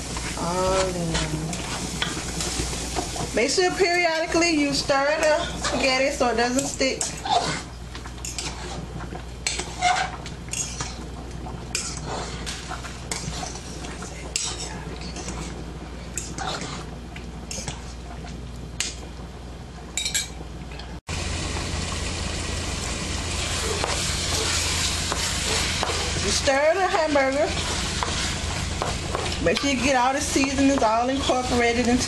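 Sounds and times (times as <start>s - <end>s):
meat sizzling in a pan: 21.2s - 32.0s.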